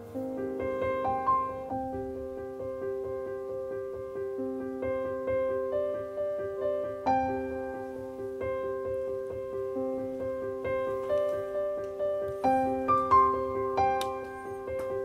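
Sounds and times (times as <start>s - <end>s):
piano music single notes: 0.0s - 15.0s.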